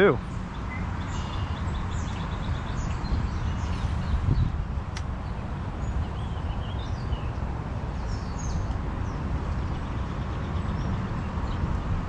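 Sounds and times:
bird chirps and calls: 0:00.0 - 0:04.6.

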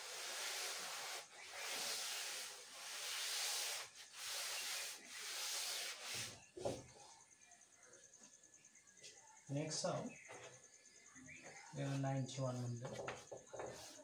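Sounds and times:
cloth duster wiping blackboard: 0:00.0 - 0:06.8, 0:11.8 - 0:14.0.

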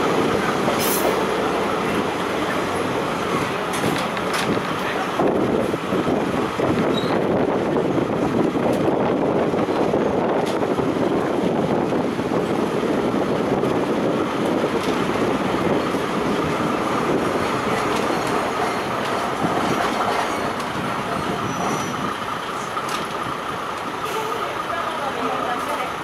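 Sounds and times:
train engine and wheels rumbling: 0:00.0 - 0:26.0
wheels squealing: 0:06.8 - 0:07.3, 0:17.4 - 0:22.8
faint rail clicks: 0:17.7 - 0:20.8.

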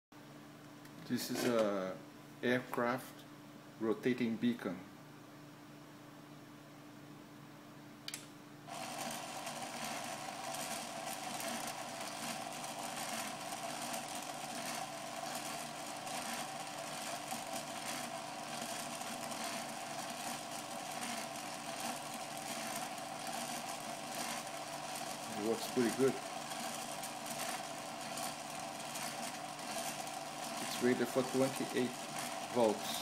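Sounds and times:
motor whirring: 0:08.7 - 0:33.0.

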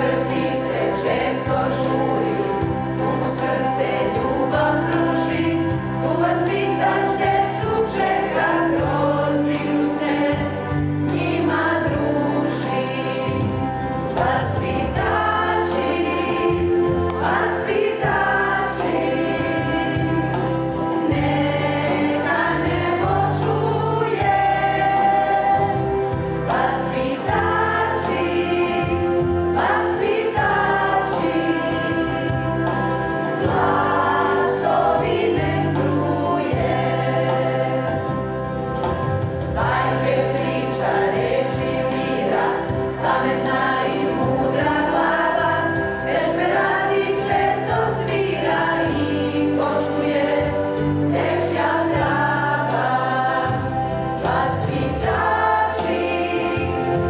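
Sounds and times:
choir singing a hymn: 0:00.0 - 0:57.0.

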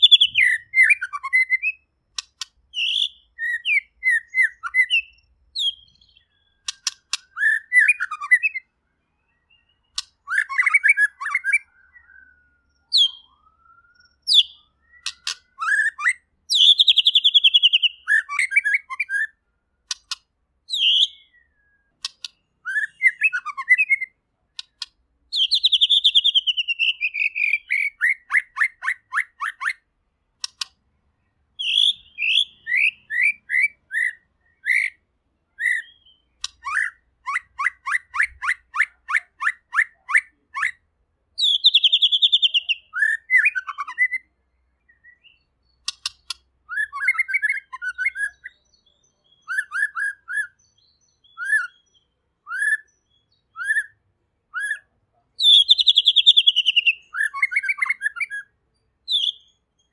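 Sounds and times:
bird singing whistled phrases: 0:00.0 - 0:01.9, 0:02.7 - 0:19.4, 0:20.7 - 0:29.8, 0:31.6 - 0:40.8, 0:41.4 - 0:59.9
bird sharp clicks: 0:02.1 - 0:03.0, 0:04.4 - 0:08.3, 0:09.9 - 0:10.8, 0:14.0 - 0:15.8, 0:19.8 - 0:21.3, 0:22.0 - 0:23.6, 0:24.5 - 0:29.8, 0:30.4 - 0:30.8, 0:36.4 - 0:37.0, 0:45.8 - 0:47.5.

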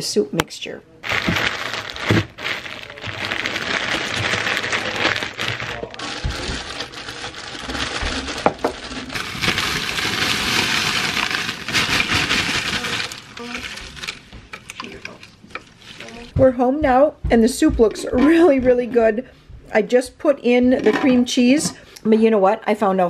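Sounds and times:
frozen pieces rattling into pot: 0:01.0 - 0:16.3
plastic bag crinkling: 0:01.0 - 0:16.3
frozen pieces clicking: 0:01.1 - 0:16.2.

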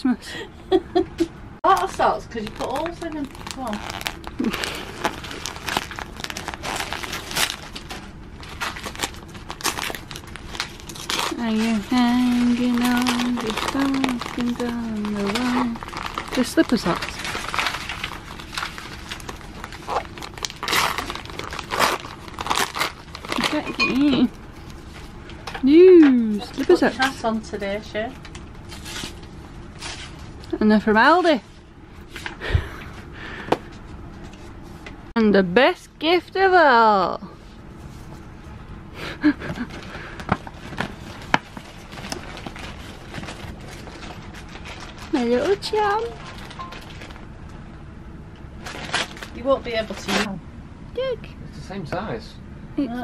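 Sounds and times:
metallic wrapping paper crinkling: 0:01.6 - 0:25.1, 0:39.6 - 0:47.3, 0:48.6 - 0:50.3.

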